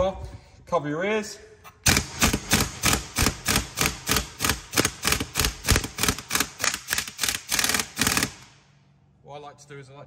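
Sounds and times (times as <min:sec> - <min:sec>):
impact wrench hammering: 0:01.8 - 0:08.5.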